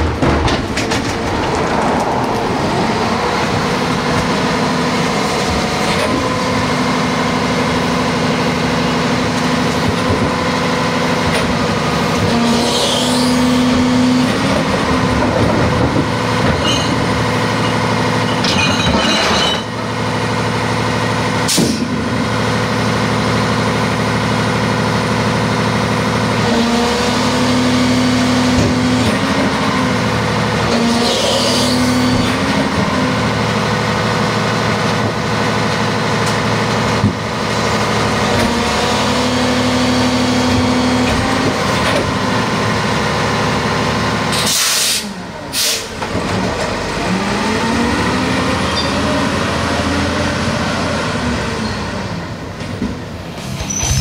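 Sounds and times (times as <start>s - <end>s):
diesel truck engine running: 0.0s - 18.4s, 19.6s - 30.8s, 32.0s - 54.0s
short air hisses: 44.5s - 45.9s.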